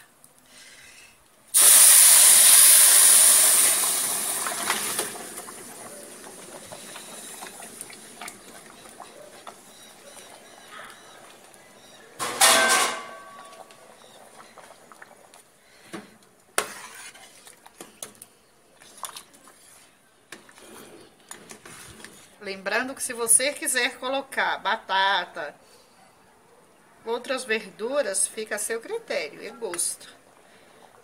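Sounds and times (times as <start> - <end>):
liquid sizzling in hot oil: 1.5 - 11.2, 16.6 - 17.6
metallic clatter of pan and spoon: 12.2 - 13.6.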